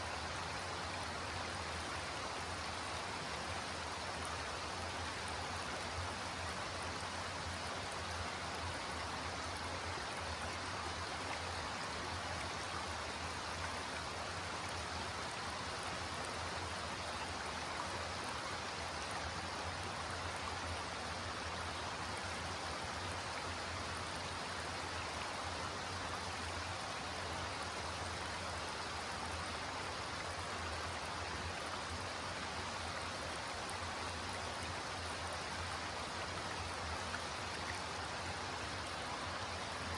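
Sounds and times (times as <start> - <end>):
creek babbling over rocks: 0.0 - 39.9.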